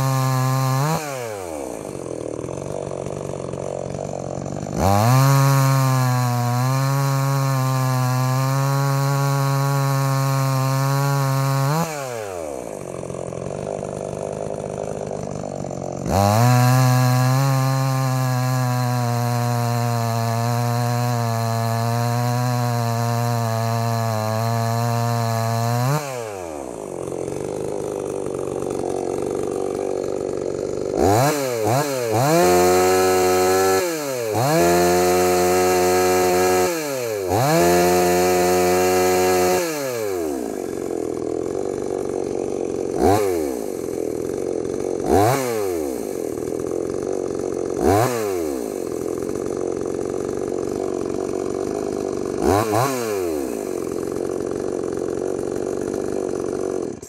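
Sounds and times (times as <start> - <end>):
chainsaw cutting log: 0.0 - 57.0
chainsaw idling: 0.0 - 57.0
chainsaw throttle blips: 0.0 - 57.0.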